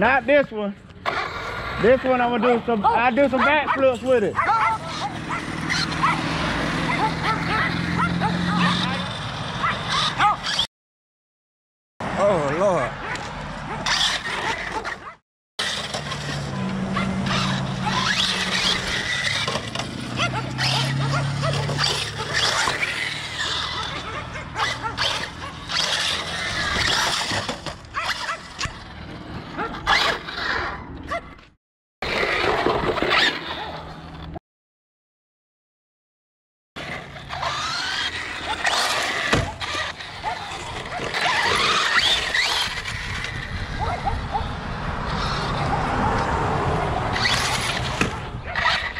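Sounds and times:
electric motor whining: 15.6 - 27.5.

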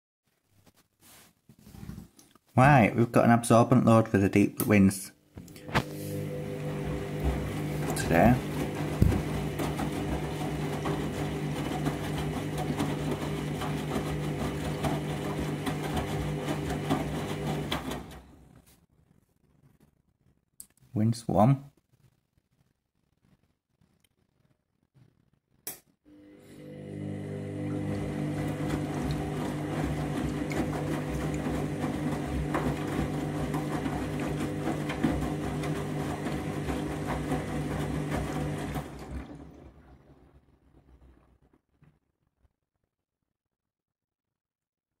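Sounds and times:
washing machine motor humming: 5.4 - 18.5, 26.1 - 40.6
water and suds sloshing: 5.6 - 18.1, 27.8 - 40.2.

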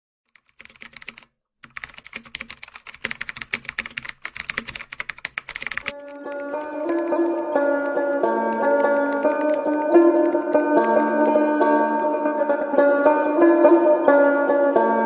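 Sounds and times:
small group clapping: 4.3 - 11.4.

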